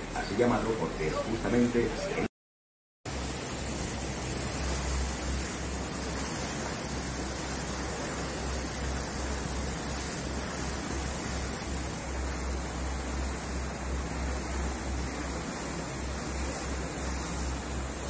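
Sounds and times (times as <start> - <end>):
water rushing past boat: 3.1 - 18.0.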